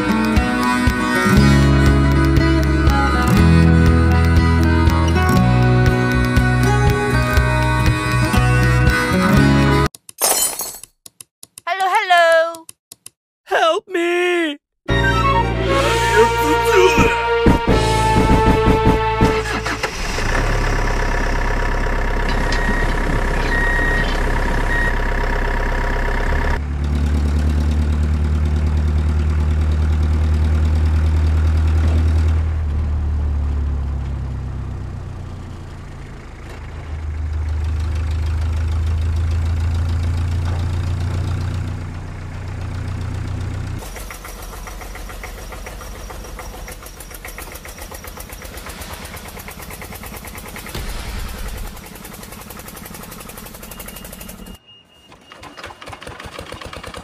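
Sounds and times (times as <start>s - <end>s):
tractor engine running: 0.0s - 9.9s, 14.9s - 57.0s.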